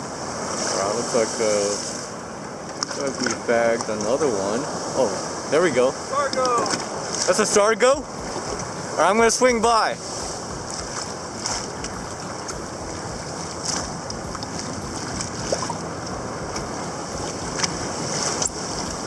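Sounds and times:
surf: 0:00.0 - 0:19.0
water sloshing around kayak: 0:00.0 - 0:19.0
wind on microphone: 0:04.9 - 0:19.0.

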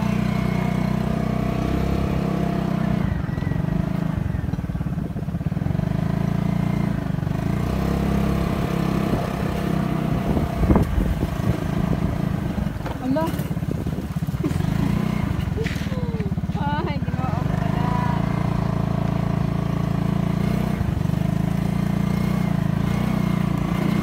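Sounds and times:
small motorcycle engine running: 0:00.0 - 0:24.0.

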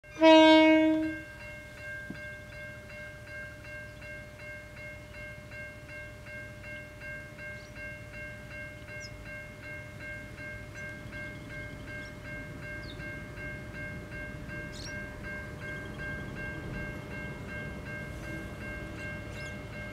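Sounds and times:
locomotive horn blast: 0:00.0 - 0:01.2
low rumble of locomotives: 0:00.0 - 0:19.9
warning bell ringing: 0:00.0 - 0:19.9.

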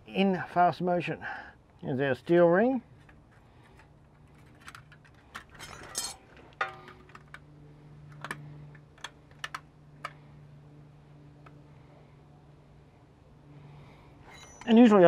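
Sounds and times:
steady low hum: 0:00.0 - 0:15.0
seal rings clicking and rustling: 0:02.9 - 0:10.2
brief squeak: 0:14.3 - 0:14.8.

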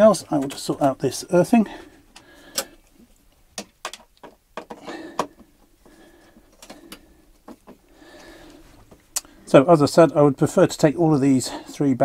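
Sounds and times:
wires rustling: 0:00.0 - 0:10.4
cable clicks and knocks: 0:03.6 - 0:05.5.

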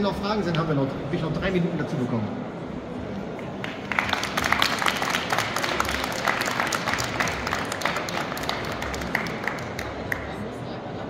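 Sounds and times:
audience applauding: 0:03.6 - 0:10.3.

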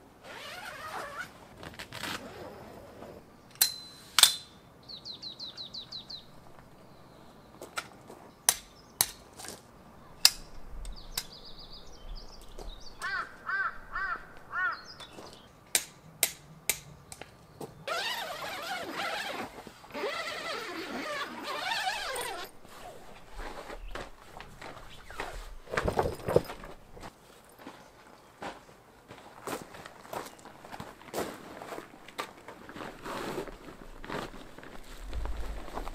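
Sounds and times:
birds chirping and calling: 0:10.9 - 0:15.5.

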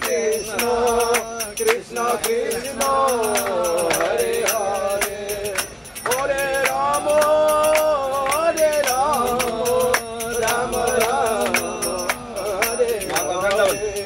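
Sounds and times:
devotional chant singing: 0:00.0 - 0:14.0
sharp percussive strikes: 0:00.0 - 0:14.0.

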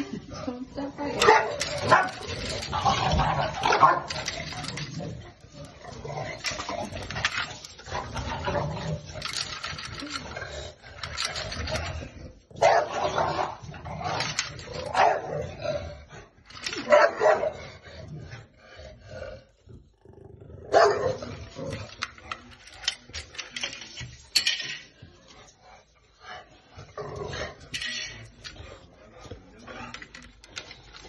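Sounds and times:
dogs barking: 0:01.0 - 0:04.4, 0:12.6 - 0:13.6, 0:14.8 - 0:15.5, 0:16.7 - 0:17.6, 0:20.7 - 0:21.2.

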